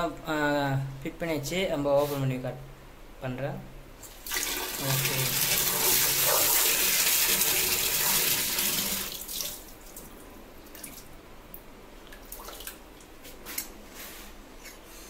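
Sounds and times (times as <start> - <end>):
water pouring into plastic bucket: 4.2 - 10.0.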